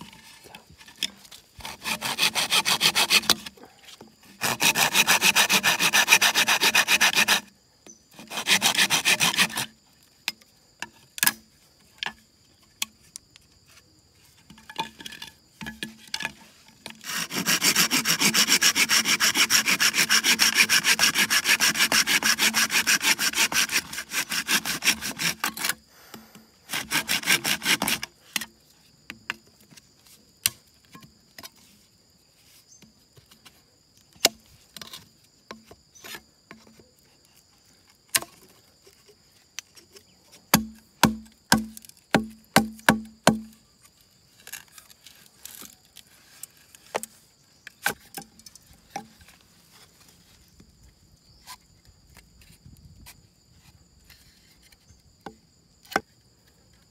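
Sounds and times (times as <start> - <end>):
hand saw cutting bamboo: 0.9 - 3.6, 4.2 - 7.5, 8.1 - 9.8, 16.2 - 25.8, 26.7 - 28.5, 40.5 - 43.6.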